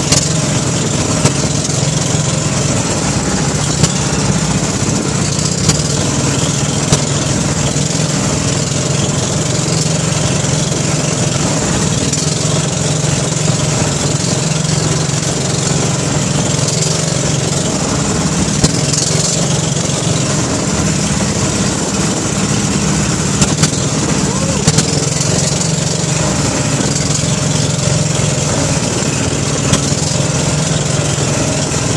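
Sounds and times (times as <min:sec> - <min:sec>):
boat engine humming: 0:00.0 - 0:31.9
water rushing and splashing: 0:00.0 - 0:31.9
sharp knocks: 0:05.2 - 0:06.2, 0:23.3 - 0:25.9.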